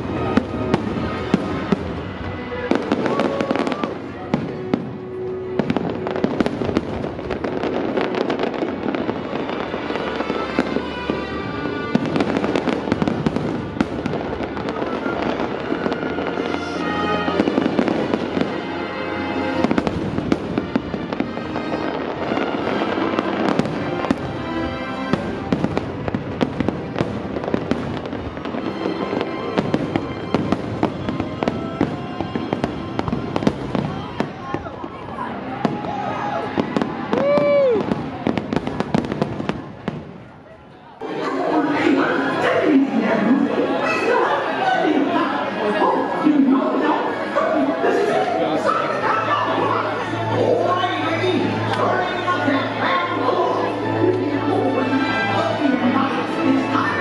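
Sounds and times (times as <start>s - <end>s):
music soundtrack: 0.0s - 38.8s, 41.0s - 57.0s
fireworks bangs and crackles: 0.0s - 41.1s.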